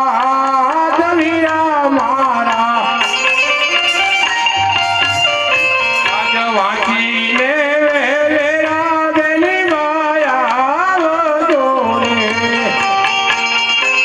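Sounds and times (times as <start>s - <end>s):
hand drum: 0.9s - 8.7s
folk melody with sliding pitch: 2.8s - 7.6s
held string notes: 2.8s - 7.8s.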